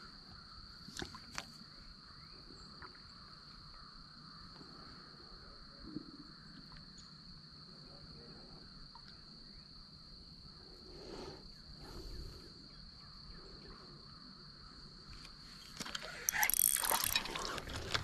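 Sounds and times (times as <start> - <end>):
insect buzzing: 15.6 - 18.0
fishing reel clicking: 15.7 - 18.0.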